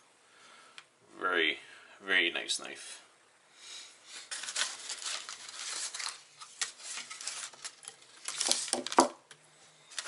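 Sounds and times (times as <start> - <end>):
wrapping paper crinkling: 4.1 - 9.2.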